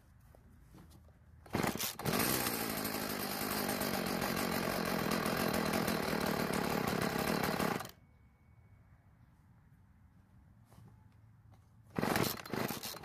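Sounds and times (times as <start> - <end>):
small two-stroke engine running: 1.5 - 8.0, 11.9 - 13.0.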